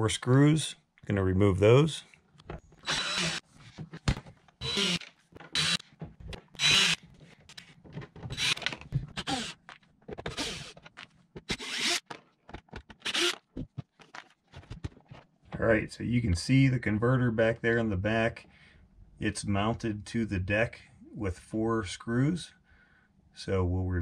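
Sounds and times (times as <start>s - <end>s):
plastic cover scraping and rattling: 3.5s - 11.2s.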